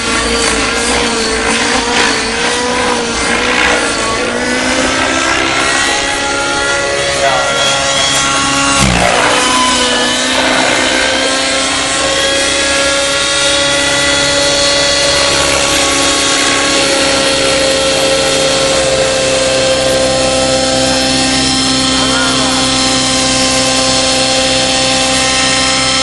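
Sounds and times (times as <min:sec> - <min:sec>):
rc helicopter engine whining: 0:00.0 - 0:26.0.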